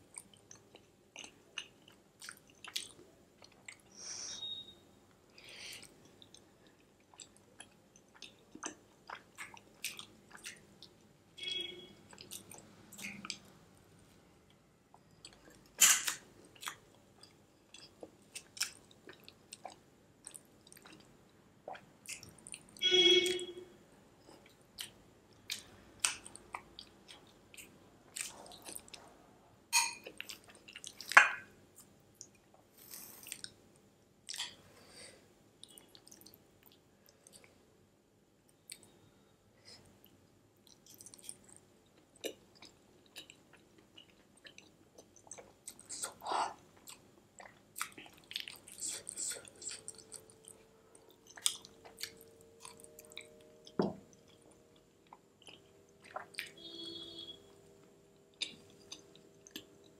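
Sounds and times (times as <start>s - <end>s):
wet chewing mouth sounds: 42.2s - 53.4s, 54.2s - 56.6s.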